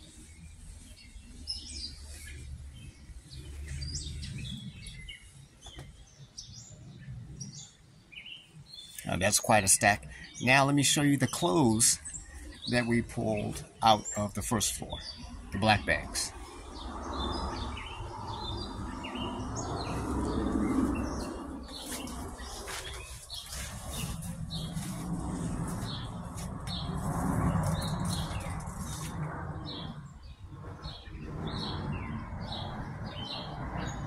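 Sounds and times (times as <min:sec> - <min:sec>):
small birds chirping: 0:00.0 - 0:34.0
steady low rumble: 0:09.0 - 0:34.0.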